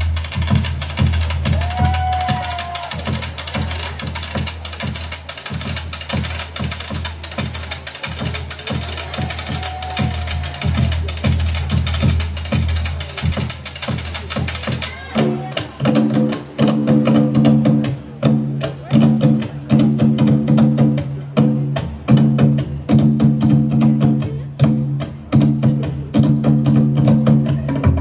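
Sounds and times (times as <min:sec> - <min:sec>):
fast dense drumming: 0:00.0 - 0:28.0.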